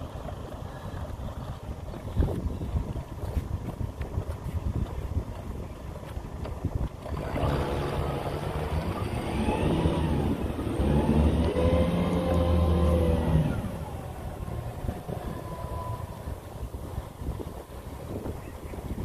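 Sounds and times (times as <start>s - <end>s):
outboard motor revving: 6.4s - 17.1s.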